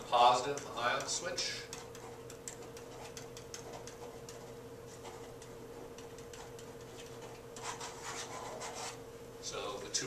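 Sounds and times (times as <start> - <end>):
pen tapping on whiteboard: 0.4 - 8.3.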